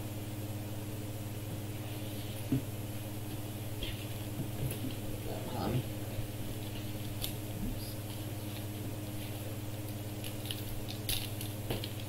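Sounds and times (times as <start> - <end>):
foil wrapper crinkling and tearing: 9.8 - 12.0.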